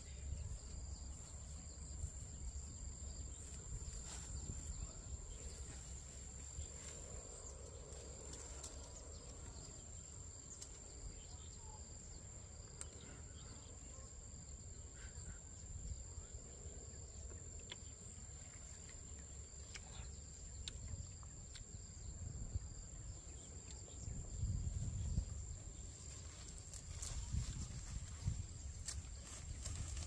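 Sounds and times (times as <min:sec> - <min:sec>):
insects trilling: 0:00.0 - 0:30.0
branches clicking: 0:06.8 - 0:09.5, 0:26.1 - 0:30.0.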